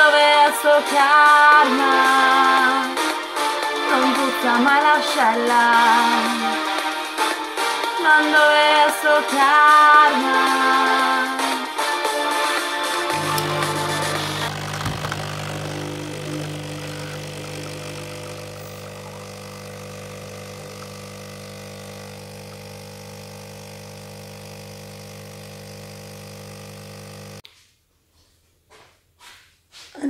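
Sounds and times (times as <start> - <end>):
background music: 0.0 - 14.5
espresso machine pump humming: 13.1 - 27.4.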